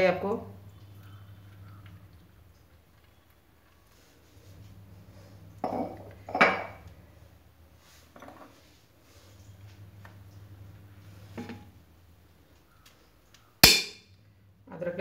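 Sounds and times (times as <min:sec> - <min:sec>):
metal kitchenware clanking: 0:13.6 - 0:14.0.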